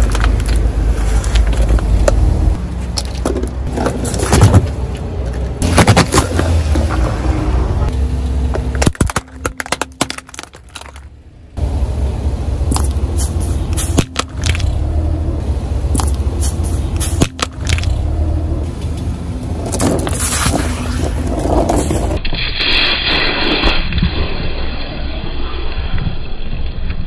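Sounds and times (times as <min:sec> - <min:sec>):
car engine running: 0:00.0 - 0:22.2
plastic containers cracking under tyre: 0:05.4 - 0:07.1, 0:08.6 - 0:11.1.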